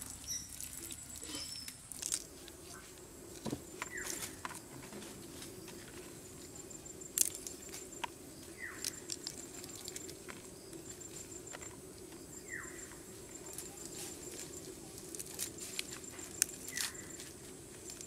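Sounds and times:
pea pods snapping open: 0.3s - 2.3s, 7.1s - 7.6s, 8.7s - 10.2s.

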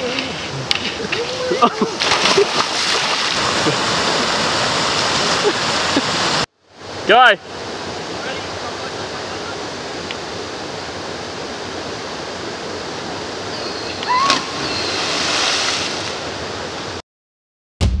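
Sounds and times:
water splashing: 0.0s - 6.5s, 13.5s - 16.5s
small waterfall rushing: 0.0s - 17.0s
body slapping into water: 2.0s - 4.0s.

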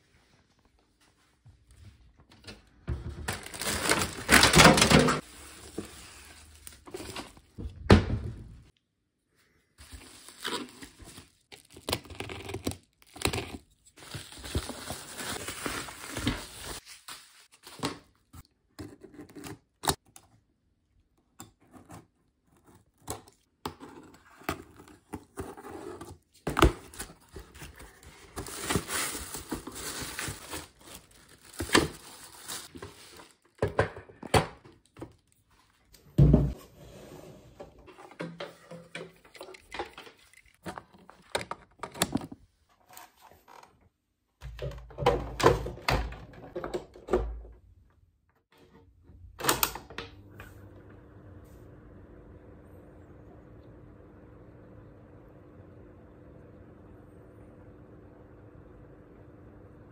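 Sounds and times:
cardboard rustling and scraping: 14.0s - 17.9s, 23.8s - 33.5s.

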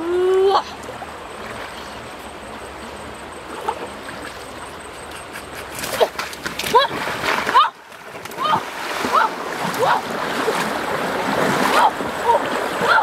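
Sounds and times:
river flowing: 0.0s - 13.0s
splash: 5.6s - 13.0s.

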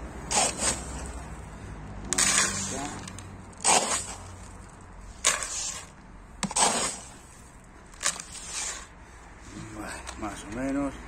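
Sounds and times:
gritty substrate pouring into tray: 2.1s - 4.5s.

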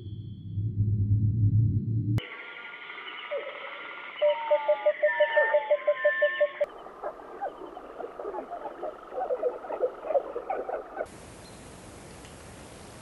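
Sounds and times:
birds chirping: 2.3s - 12.8s
faint steady hiss: 11.1s - 13.0s.

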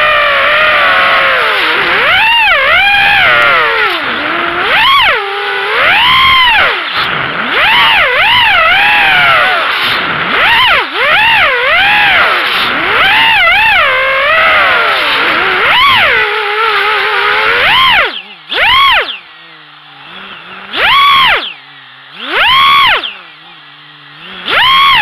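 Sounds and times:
drone motors whining: 0.0s - 25.0s.

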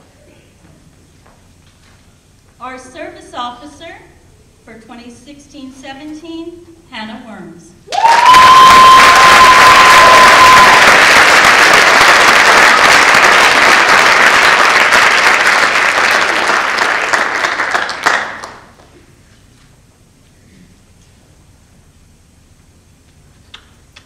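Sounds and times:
audience applauding: 7.9s - 18.9s.

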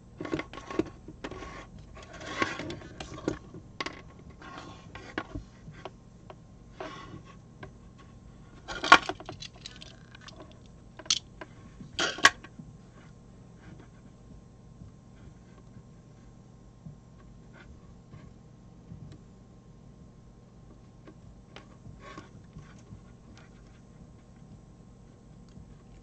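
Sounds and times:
cable wires rustling and scratching: 0.0s - 6.0s, 6.7s - 14.3s, 21.0s - 26.0s.

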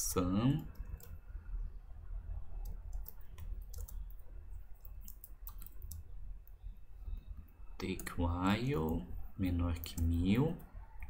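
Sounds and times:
low steady hum: 0.0s - 11.0s
keyboard typing clicks: 0.5s - 1.2s, 2.6s - 4.2s, 4.8s - 6.1s.

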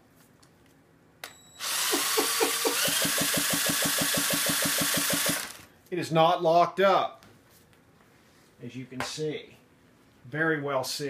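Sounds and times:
cordless drill spinning: 1.6s - 5.7s.

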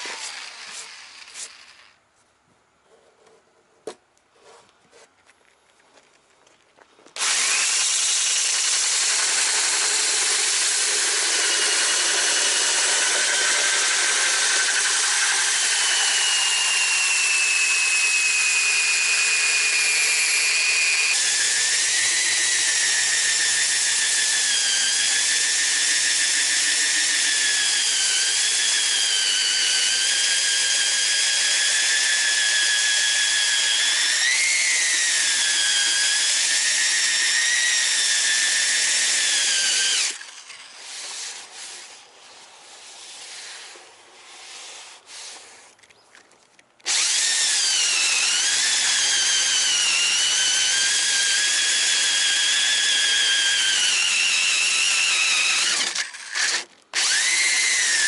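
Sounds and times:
rotary tool high whine: 0.0s - 2.0s, 7.2s - 46.0s, 46.8s - 58.0s.

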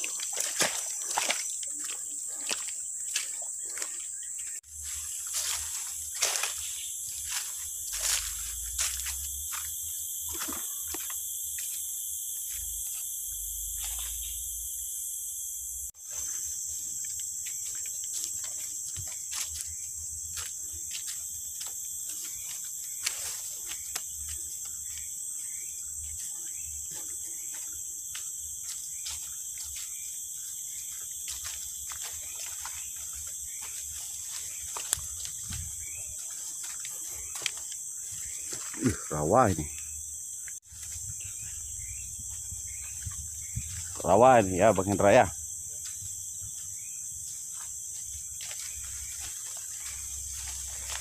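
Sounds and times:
footsteps on wet trail: 0.0s - 14.7s, 15.9s - 51.0s
insects chirping chorus: 0.0s - 51.0s
brushing through leaves: 4.6s - 9.7s, 48.2s - 51.0s.

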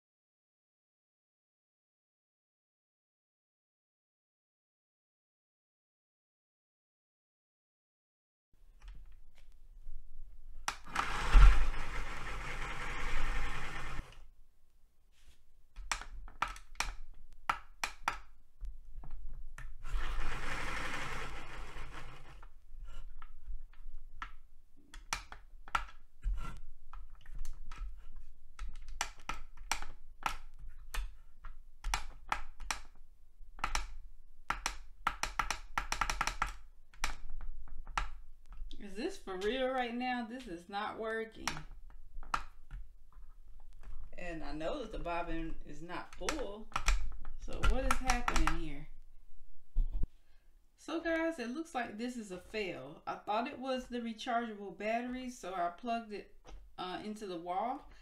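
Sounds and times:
small motor whirring: 10.9s - 14.1s, 19.9s - 22.4s.

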